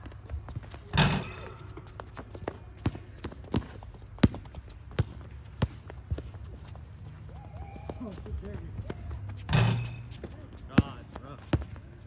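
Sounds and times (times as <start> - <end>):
basketball bouncing on hard court: 0.0 - 6.3, 7.5 - 12.0
basketball clanging off rim: 0.9 - 1.7, 9.5 - 10.1.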